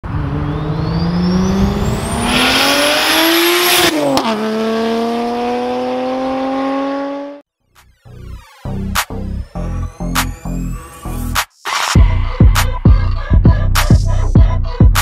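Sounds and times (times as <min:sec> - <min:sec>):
high rising whine: 0:00.0 - 0:04.0
car engine accelerating hard: 0:00.0 - 0:07.4.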